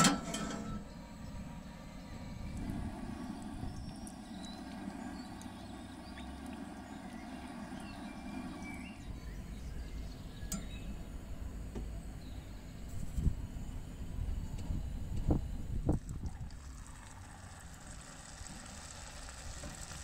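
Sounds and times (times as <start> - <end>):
low outdoor rumble: 0.0 - 20.0
oil pouring into a skillet: 16.1 - 20.0.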